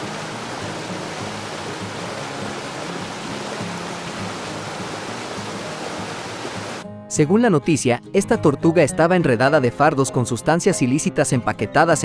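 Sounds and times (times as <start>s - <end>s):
water rushing at boat side: 0.0s - 6.8s
faint background music: 0.0s - 12.0s.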